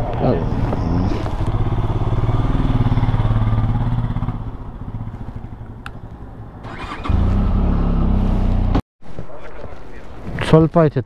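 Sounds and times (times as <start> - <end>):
motorcycle engine throbbing: 0.7 - 5.8.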